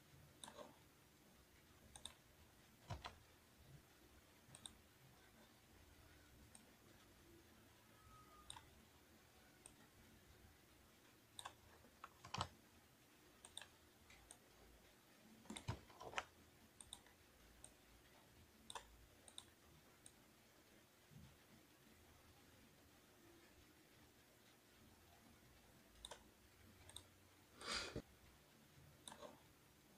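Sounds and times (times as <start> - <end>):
quiet room hiss: 0.0 - 29.9
mouse and keyboard clicks: 0.4 - 0.8, 1.9 - 2.2, 2.8 - 3.2, 4.5 - 4.8, 8.3 - 8.7, 11.3 - 12.6, 13.4 - 14.5, 15.4 - 17.8, 18.6 - 20.2, 26.0 - 27.2, 29.0 - 29.4.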